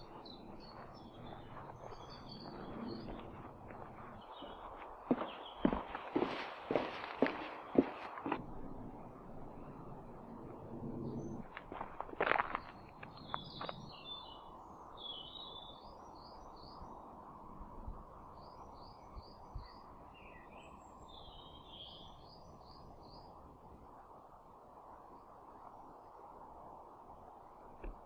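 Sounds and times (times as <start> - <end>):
birds chirping: 0.0 - 8.4, 11.1 - 17.0.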